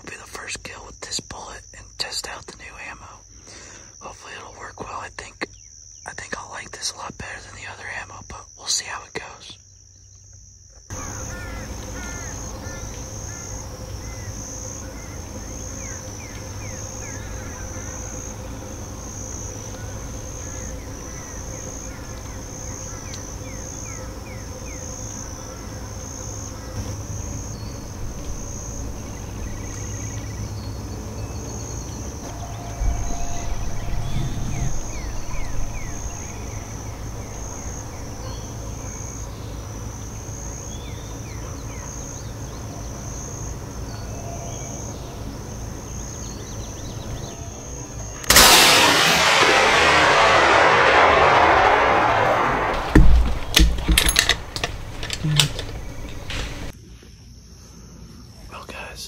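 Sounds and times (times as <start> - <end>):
insect chirps: 0.0 - 59.0
insects chirring: 0.0 - 59.0
low rumble: 32.2 - 39.4, 48.2 - 56.7.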